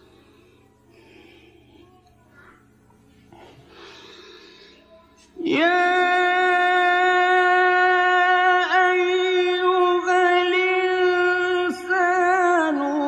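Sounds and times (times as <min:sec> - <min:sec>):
person reciting melodically: 0:05.4 - 0:13.0.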